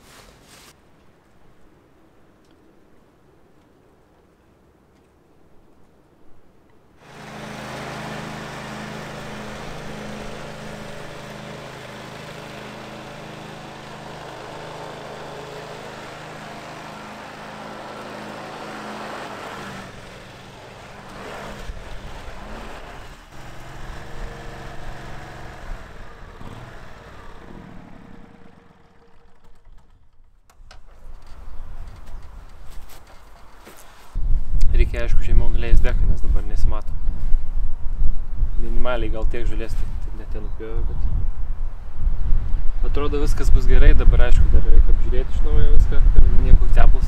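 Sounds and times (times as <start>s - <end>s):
lawn mower engine running: 7.0s - 32.2s.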